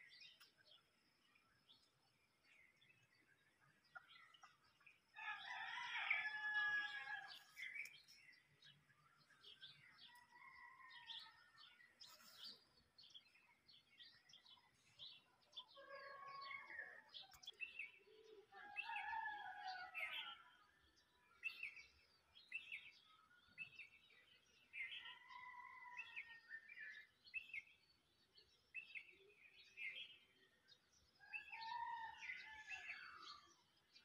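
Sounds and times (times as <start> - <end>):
small birds chirping: 0.0 - 26.4.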